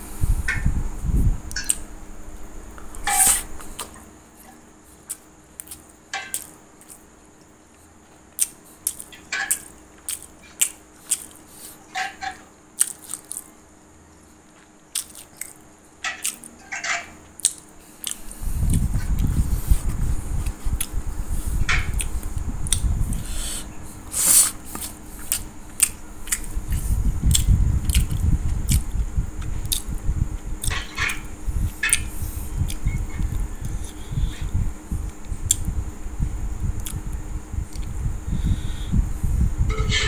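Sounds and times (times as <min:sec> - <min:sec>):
phone handling rumble: 0:39.7 - 0:40.0.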